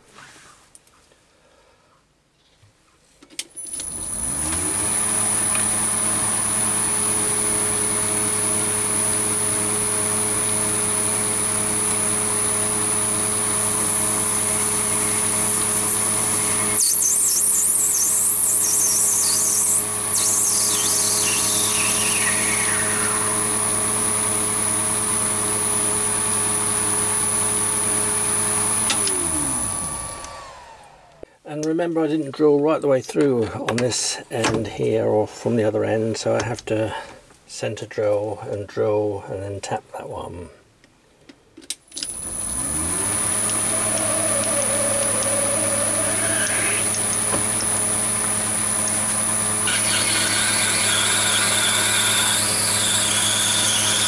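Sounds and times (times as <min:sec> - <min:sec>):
lathe motor hum and whine: 0:03.8 - 0:31.3, 0:42.0 - 0:54.0.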